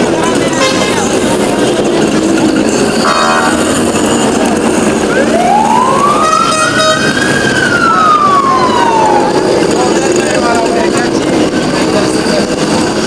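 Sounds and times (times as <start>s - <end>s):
street traffic: 0.0s - 13.0s
emergency siren wailing: 3.0s - 13.0s.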